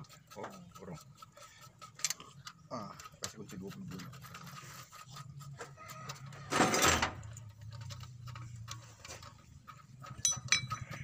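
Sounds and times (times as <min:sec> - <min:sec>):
wrench clicking and tapping metal: 0:00.0 - 0:04.1, 0:07.2 - 0:11.0.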